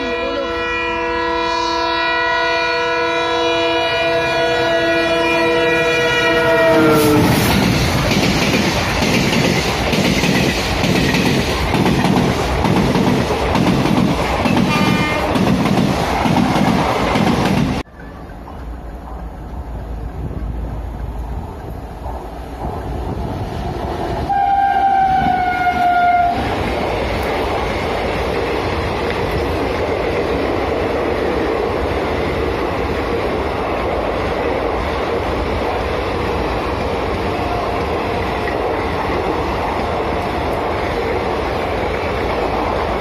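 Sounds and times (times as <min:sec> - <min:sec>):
train horn blast: 0:00.0 - 0:07.5, 0:14.6 - 0:15.4, 0:24.3 - 0:26.5
distant train rumble: 0:00.0 - 0:43.0
train wheels clattering over rail joints: 0:07.2 - 0:17.8.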